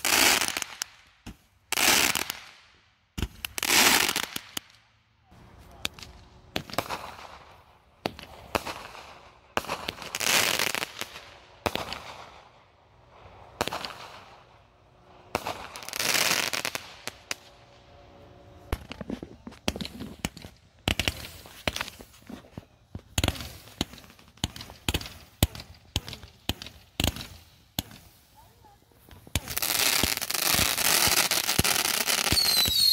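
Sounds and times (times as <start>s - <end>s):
firework bangs: 5.8s - 17.6s, 18.7s - 32.9s
fireworks hissing: 18.6s - 32.9s
firework pops: 18.7s - 28.1s.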